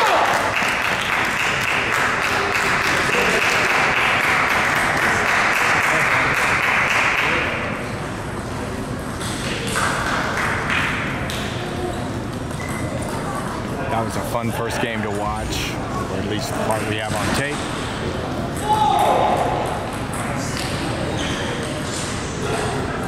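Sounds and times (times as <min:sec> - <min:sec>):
crowd hubbub in a hall: 0:00.0 - 0:23.0
table tennis balls pinging: 0:16.8 - 0:22.8.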